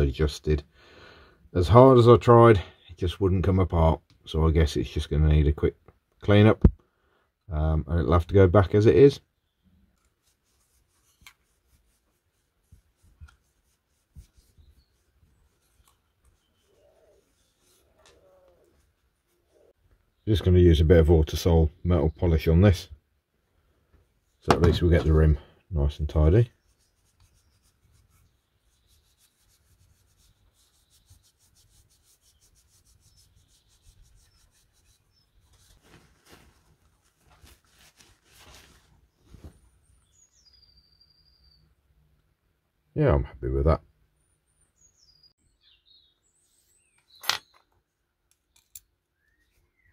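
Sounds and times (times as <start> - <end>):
cloth rubbing on metal: 9.9 - 19.8, 26.0 - 39.8.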